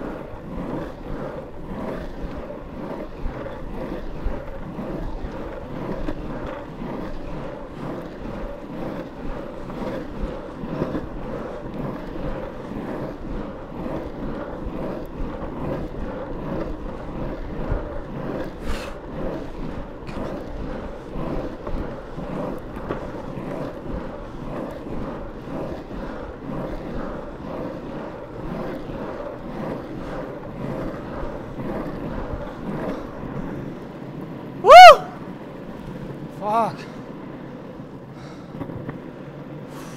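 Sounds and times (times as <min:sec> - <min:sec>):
wheels rolling over asphalt: 0:00.0 - 0:39.9
wind buffeting microphone: 0:00.0 - 0:39.9.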